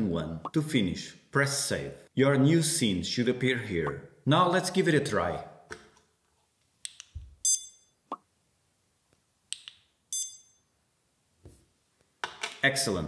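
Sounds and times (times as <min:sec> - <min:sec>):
short high-pitched electronic beep: 0:07.4 - 0:07.9, 0:10.1 - 0:10.6.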